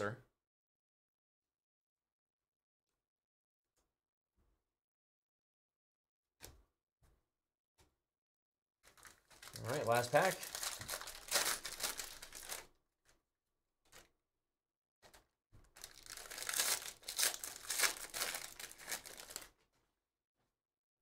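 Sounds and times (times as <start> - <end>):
foil wrapper crinkling and tearing: 8.9 - 12.7, 15.7 - 19.5.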